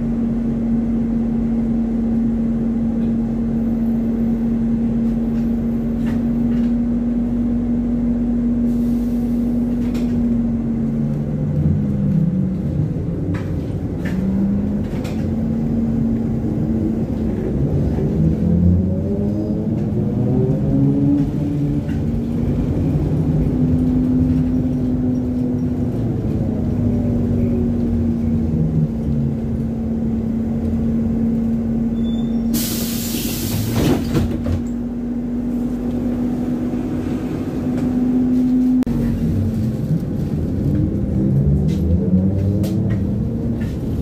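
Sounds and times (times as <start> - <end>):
trolleybus motor whine: 0.0 - 44.0
air hiss: 32.4 - 33.8.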